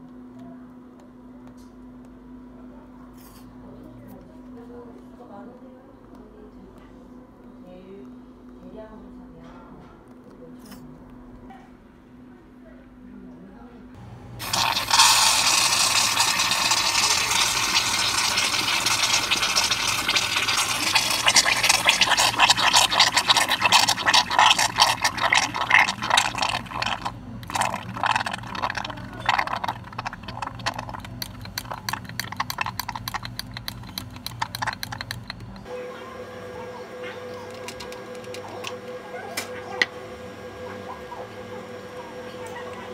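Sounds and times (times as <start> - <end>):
whipped cream dispenser hissing: 14.4 - 35.6.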